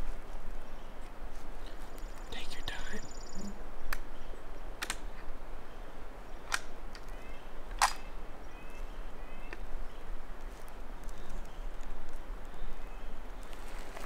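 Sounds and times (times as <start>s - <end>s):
faint bird chirps: 1.7s - 4.6s, 5.6s - 10.1s
sharp clicks: 4.8s - 5.0s, 6.5s - 8.1s.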